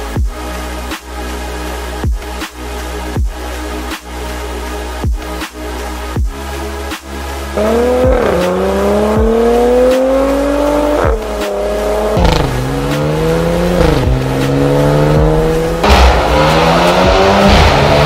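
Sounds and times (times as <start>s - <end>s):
car engine accelerating: 7.6s - 18.0s.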